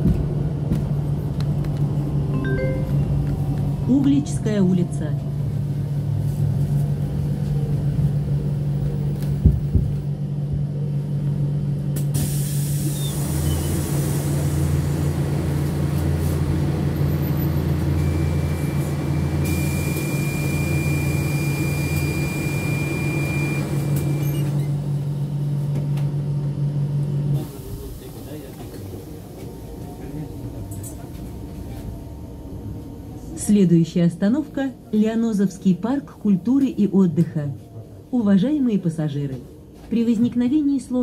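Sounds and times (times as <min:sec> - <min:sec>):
steady high tone: 0:02.3 - 0:03.3.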